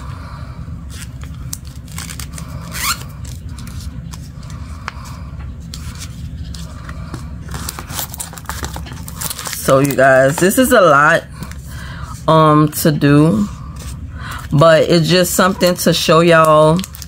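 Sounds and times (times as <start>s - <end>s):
low hum: 0.0s - 16.2s
wrappers rustling: 0.9s - 3.9s, 7.6s - 10.9s, 16.4s - 17.0s.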